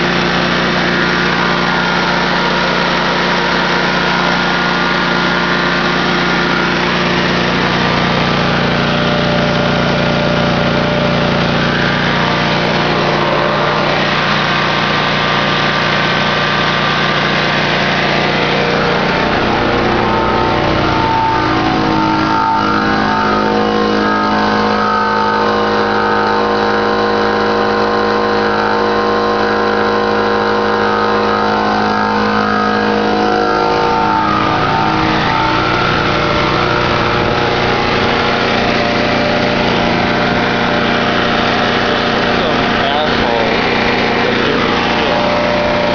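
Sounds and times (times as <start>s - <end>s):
generator engine running: 0.0s - 45.9s.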